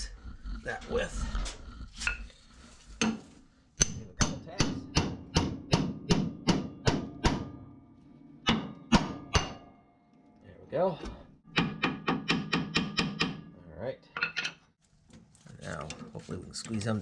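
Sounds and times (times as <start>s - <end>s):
hammer striking metal tool: 3.8s - 7.8s, 8.4s - 9.8s, 11.5s - 13.5s.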